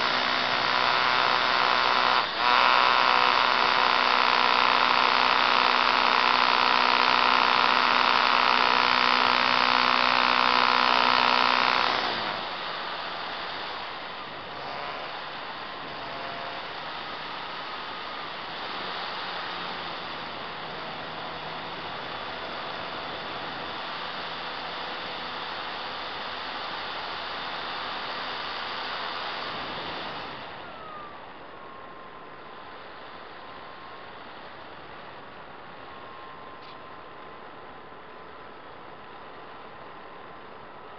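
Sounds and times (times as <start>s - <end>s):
electric motor and propeller humming: 0.0s - 40.9s
wind and propeller rush: 28.4s - 32.0s.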